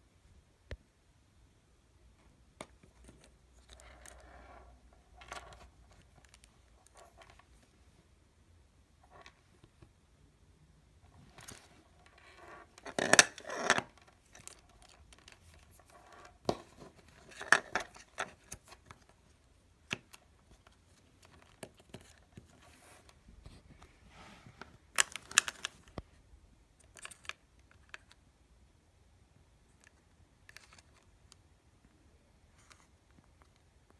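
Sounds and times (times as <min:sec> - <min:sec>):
earphones rattling in case: 0:11.1 - 0:19.2.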